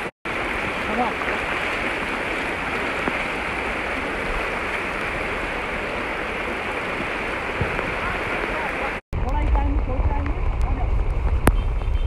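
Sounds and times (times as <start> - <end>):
stream rushing over stones: 0.0 - 10.0.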